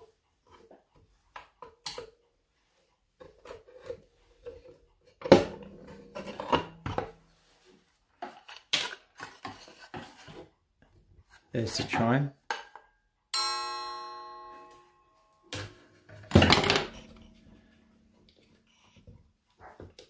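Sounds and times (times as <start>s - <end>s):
clock gong ringing: 13.4s - 15.4s.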